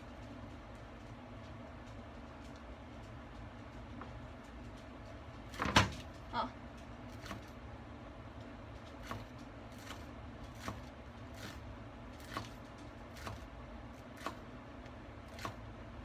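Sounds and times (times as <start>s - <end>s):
steady low hum: 0.0s - 16.0s
knife chopping on cutting board: 8.9s - 11.6s, 12.2s - 14.4s, 15.3s - 15.6s.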